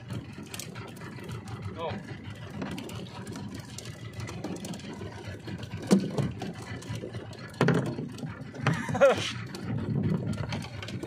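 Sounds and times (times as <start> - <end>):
boat engine running steadily: 0.0 - 11.0
sharp knocks on boat: 5.5 - 6.6, 7.5 - 9.1.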